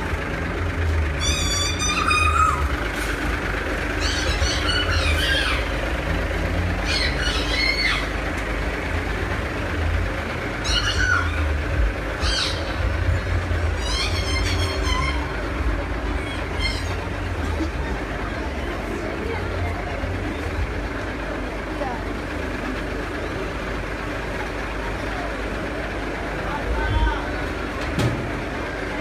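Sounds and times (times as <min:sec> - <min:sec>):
diesel truck engine idling: 0:00.0 - 0:29.0.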